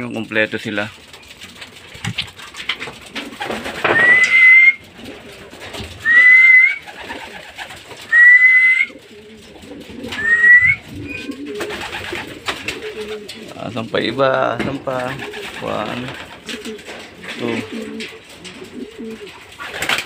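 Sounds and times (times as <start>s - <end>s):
pigeons cooing: 0.0s - 20.0s
person whistling: 3.9s - 4.8s, 6.0s - 6.8s, 8.1s - 9.0s, 10.2s - 11.2s.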